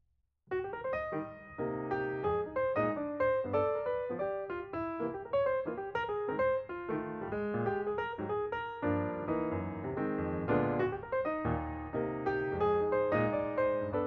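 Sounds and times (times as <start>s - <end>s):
piano music: 0.5s - 14.0s.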